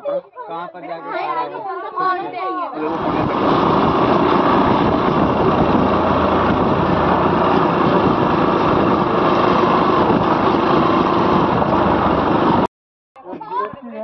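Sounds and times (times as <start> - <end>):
rushing wind noise: 2.9 - 12.7
motorcycle engine running: 3.0 - 12.7.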